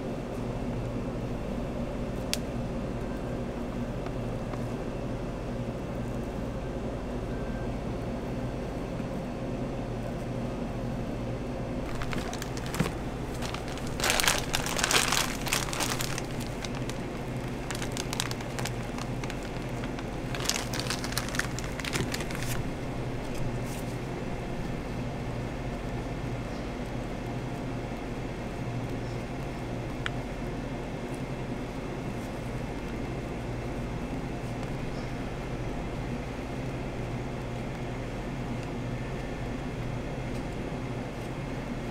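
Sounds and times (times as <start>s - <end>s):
low background hum: 0.0s - 41.9s
plastic piping bag crinkling: 11.8s - 23.4s.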